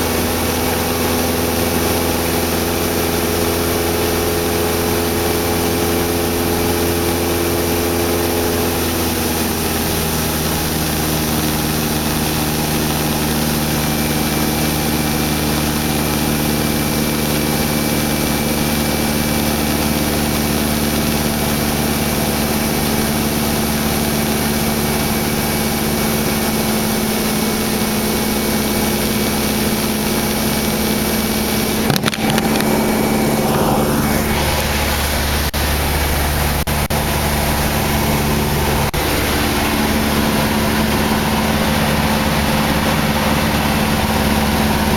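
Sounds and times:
airplane engine and propeller droning: 0.0 - 44.9.

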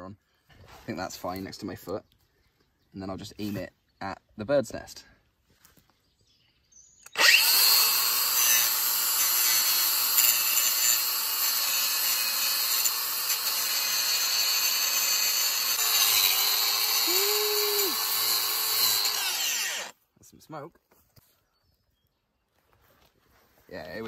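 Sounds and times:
angle grinder grinding metal: 7.1 - 19.9.

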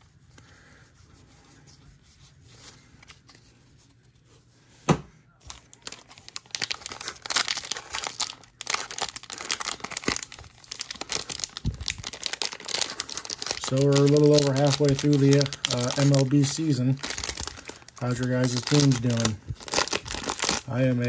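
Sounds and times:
wrapper tearing and crinkling: 5.5 - 21.0.

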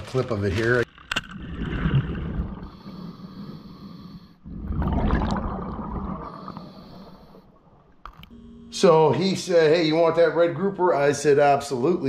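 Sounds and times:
underwater bubbling: 0.9 - 8.0
diver breathing through regulator: 2.5 - 4.6, 6.2 - 7.6.

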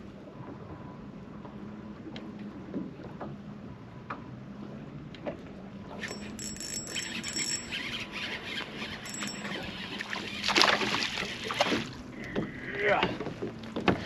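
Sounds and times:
fishing reel squealing whir: 6.0 - 12.0.

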